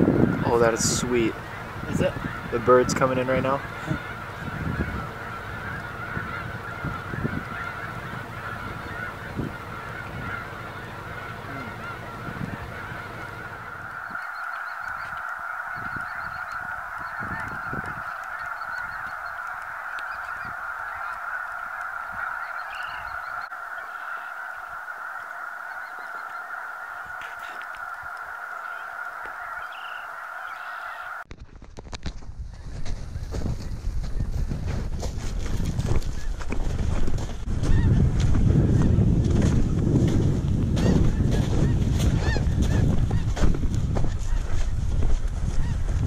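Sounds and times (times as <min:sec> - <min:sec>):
geese honking: 0:00.0 - 0:31.2, 0:37.6 - 0:38.0, 0:40.8 - 0:44.8, 0:45.5 - 0:46.0.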